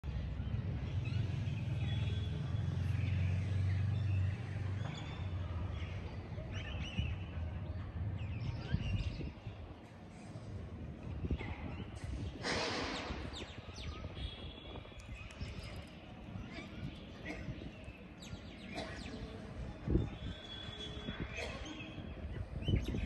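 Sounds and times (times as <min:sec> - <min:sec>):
birds chirping: 0:00.1 - 0:23.0.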